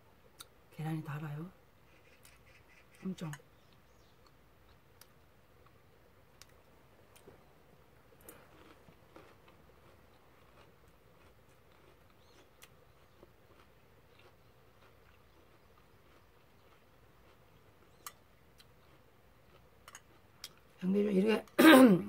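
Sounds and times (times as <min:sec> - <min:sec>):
faint chewing: 0:01.8 - 0:20.8
chopsticks clicking against a dish: 0:19.9 - 0:20.6.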